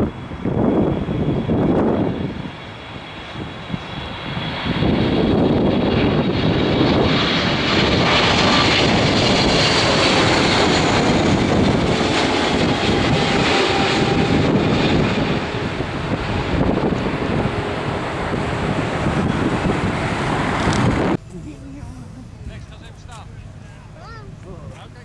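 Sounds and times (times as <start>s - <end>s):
jet engine noise: 0.0s - 25.0s
faint whine: 19.2s - 25.0s.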